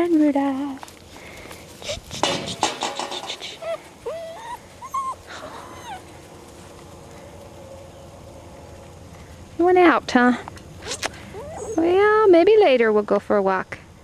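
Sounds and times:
rustling: 0.0s - 12.1s
puppies whining and yipping: 1.8s - 6.7s, 10.8s - 12.0s.

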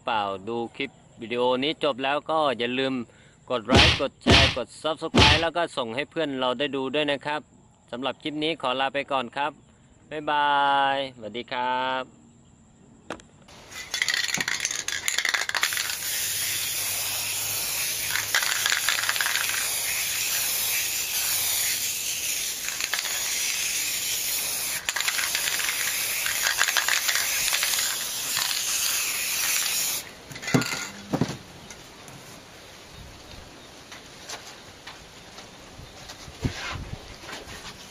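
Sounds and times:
spray paint can hissing: 13.5s - 30.9s.

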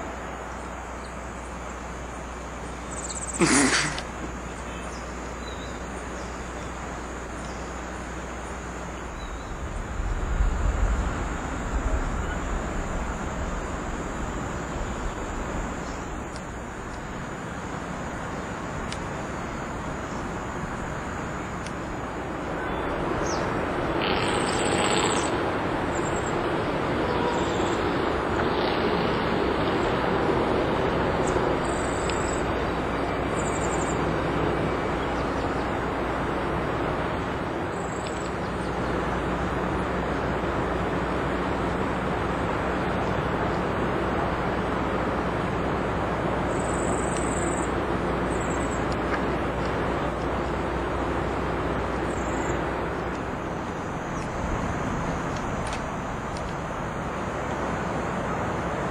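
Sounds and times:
steady high-pitched hiss: 0.0s - 58.9s
vehicle engine rumble: 0.0s - 58.9s
low rumble: 9.1s - 17.2s.

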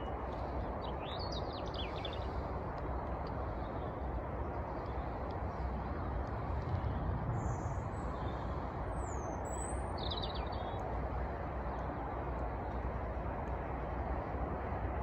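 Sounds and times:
low rumble: 5.8s - 9.3s.

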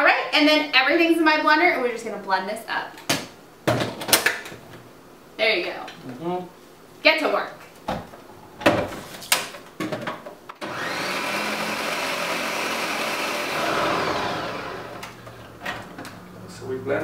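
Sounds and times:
blender motor running: 10.6s - 15.3s.

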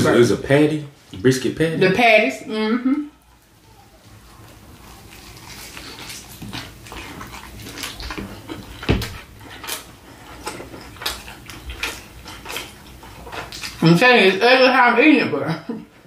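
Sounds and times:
mouth chewing and smacking: 3.4s - 13.8s.

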